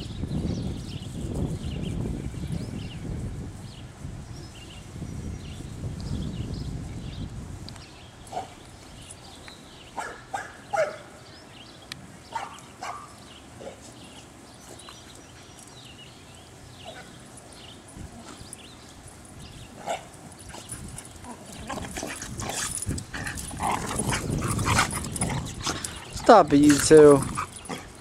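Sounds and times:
dogs play-fighting: 0:12.3 - 0:16.1, 0:16.8 - 0:28.0.

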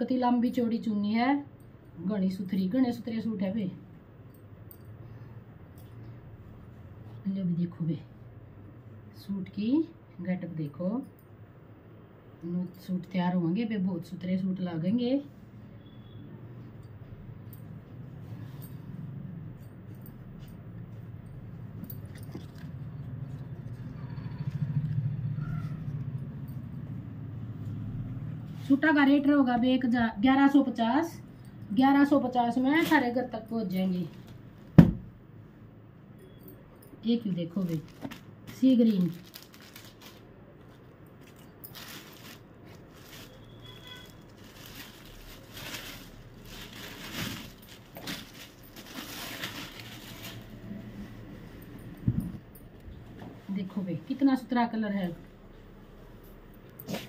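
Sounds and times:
low steady hum: 0:00.0 - 0:57.0
cloth rustling: 0:37.6 - 0:51.1.

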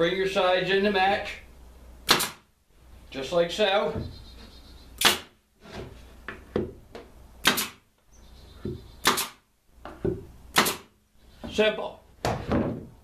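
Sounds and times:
nail gun shots: 0:02.0 - 0:02.5, 0:05.0 - 0:05.4, 0:07.4 - 0:07.8, 0:09.0 - 0:09.4, 0:10.5 - 0:11.0.

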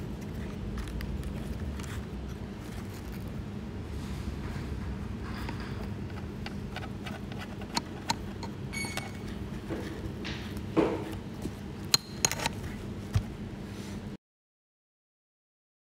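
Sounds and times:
steady low hum: 0:00.0 - 0:14.2
plastic parts clicking and tapping: 0:05.4 - 0:12.6.

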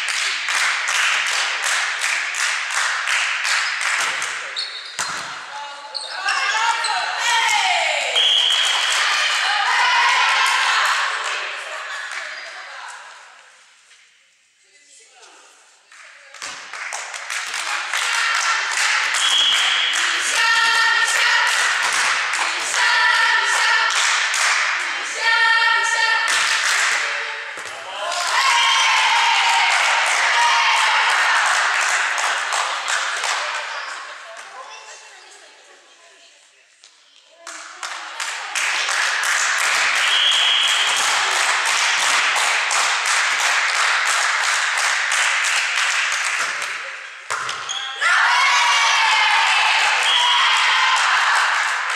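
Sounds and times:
rhythmic clapping: 0:00.0 - 0:05.3, 0:15.9 - 0:25.1, 0:26.2 - 0:28.6, 0:29.3 - 0:34.6, 0:36.9 - 0:47.6, 0:49.6 - 0:51.9
crowd cheering: 0:06.5 - 0:12.1, 0:27.7 - 0:33.9, 0:38.2 - 0:44.2, 0:48.0 - 0:51.9
whistle blast: 0:08.2 - 0:09.0, 0:19.2 - 0:19.9, 0:40.0 - 0:41.0
girls chanting together: 0:08.9 - 0:12.0, 0:20.0 - 0:32.2, 0:48.0 - 0:51.9.

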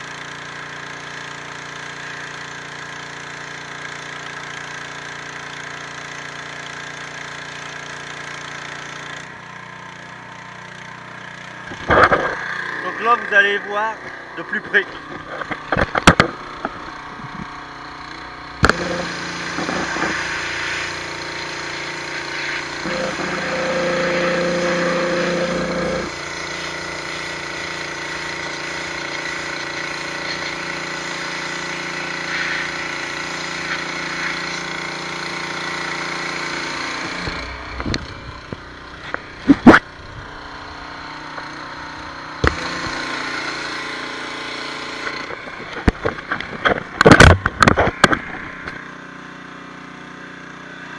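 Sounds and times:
pump hum: 0:00.0 - 0:13.4, 0:14.0 - 0:50.9
pressure washer jet hissing: 0:18.6 - 0:39.4.

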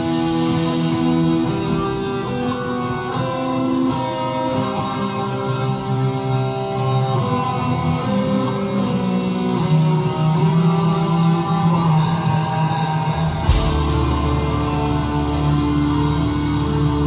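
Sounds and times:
distorted electric guitars: 0:00.0 - 0:17.0
deep bass: 0:13.1 - 0:17.0.

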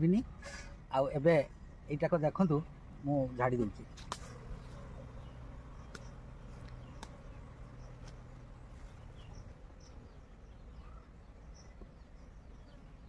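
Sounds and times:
bees buzzing: 0:00.0 - 0:13.0
faint bird chirps: 0:02.9 - 0:13.0
light clicks: 0:05.9 - 0:07.2.

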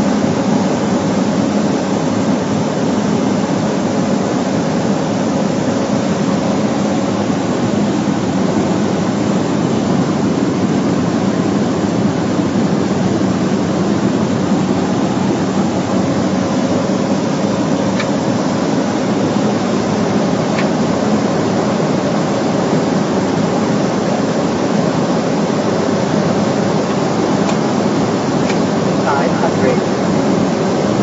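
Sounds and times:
propeller engine drone: 0:00.0 - 0:31.0
faint hum: 0:25.5 - 0:31.0.

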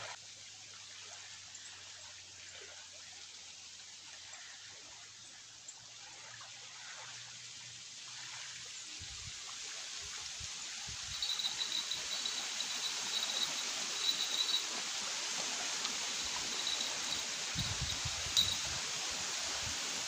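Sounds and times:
steady hiss: 0:10.5 - 0:20.0.

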